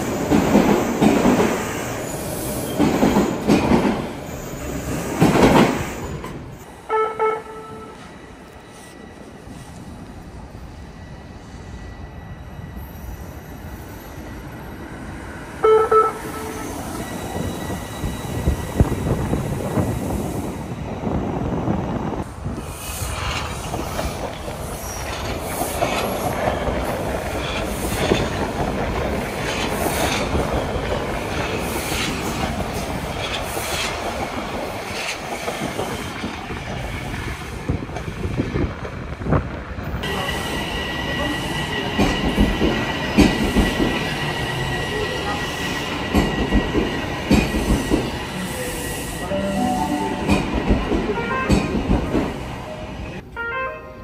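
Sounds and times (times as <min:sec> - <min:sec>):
subway train passing: 0:00.0 - 0:54.0
train horn blast: 0:06.9 - 0:08.0, 0:15.6 - 0:16.7, 0:49.3 - 0:51.8, 0:53.3 - 0:54.0
wheels rumbling on rail: 0:16.0 - 0:53.2.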